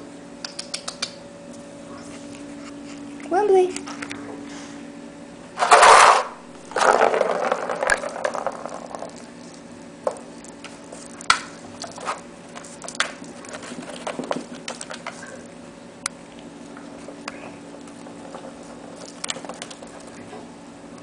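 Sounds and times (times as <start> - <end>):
plastic toy scraping on tile floor: 5.6 - 8.8.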